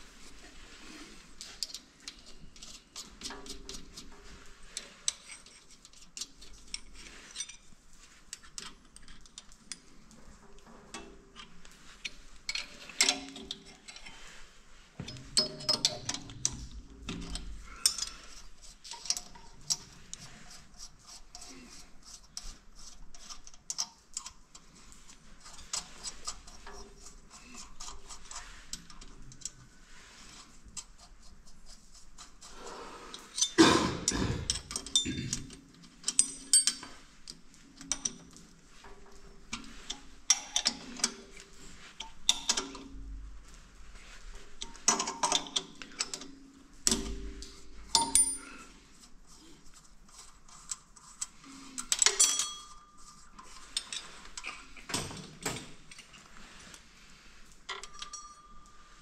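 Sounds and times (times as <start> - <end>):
metal tools clinking and knocking: 15.0 - 18.2, 34.5 - 37.0, 47.9 - 48.7, 51.8 - 52.9, 57.7 - 58.7.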